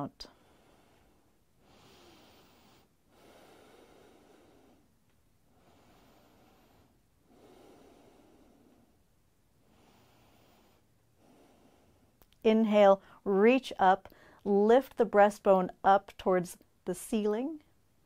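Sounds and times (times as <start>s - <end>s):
woman breathing slowly: 0.2s - 12.3s, 14.0s - 14.5s.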